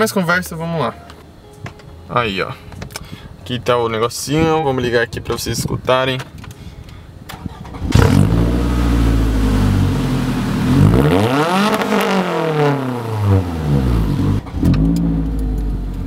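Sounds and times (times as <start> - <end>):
car engine idling and revving: 7.8 - 16.0.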